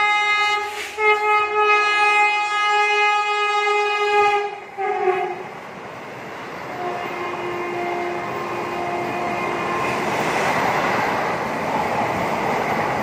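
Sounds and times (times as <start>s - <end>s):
train horn blasts: 0.0s - 5.5s, 6.7s - 10.0s
rush of passing train: 0.0s - 13.0s.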